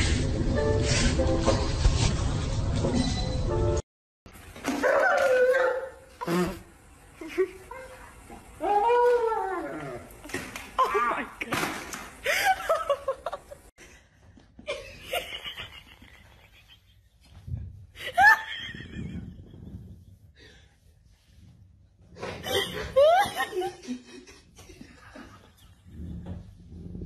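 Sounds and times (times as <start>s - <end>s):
woman laughing: 12.2s - 13.7s, 18.0s - 19.4s, 22.4s - 25.6s.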